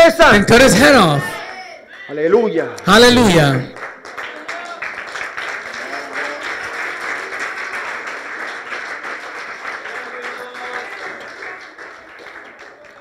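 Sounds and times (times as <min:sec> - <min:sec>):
voices calling out in praise: 0:00.0 - 0:03.8
congregation clapping: 0:02.8 - 0:13.0.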